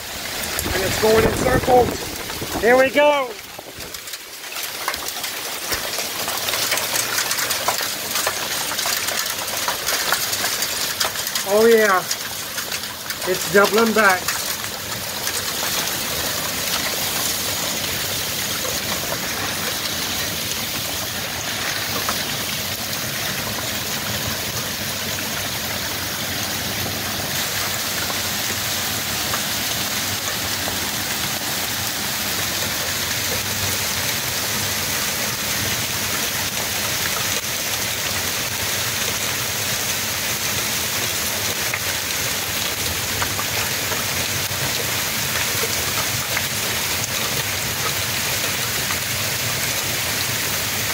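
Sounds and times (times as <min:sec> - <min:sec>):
heavy rain pouring: 0:00.0 - 0:50.9.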